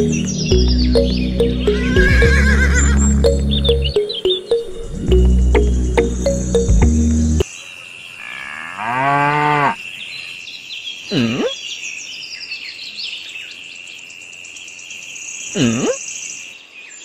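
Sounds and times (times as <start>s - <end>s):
bird chirps: 0.0s - 7.2s
cow mooing: 8.2s - 9.8s.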